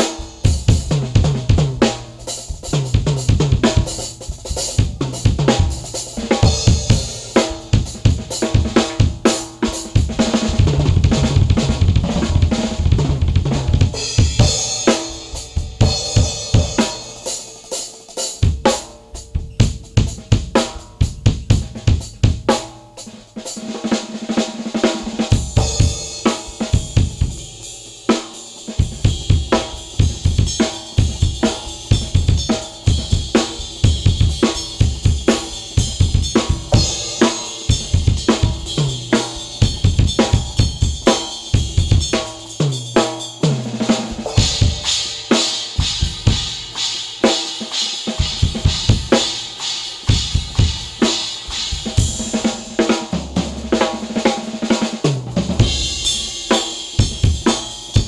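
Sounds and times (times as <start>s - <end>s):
drum kit playing: 0.0s - 58.0s
cymbal wash: 13.9s - 21.7s, 25.0s - 53.1s.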